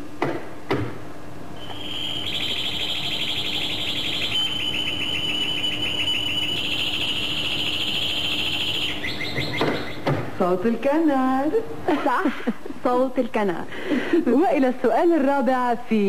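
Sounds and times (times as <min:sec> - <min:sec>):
canary singing trills: 0:01.6 - 0:10.1.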